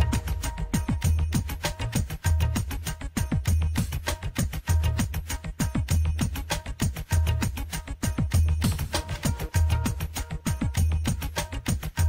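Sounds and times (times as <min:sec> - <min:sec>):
belly dance music: 0:00.0 - 0:12.0
deep bass beats: 0:00.0 - 0:12.0
fast drum rhythm: 0:00.0 - 0:12.0.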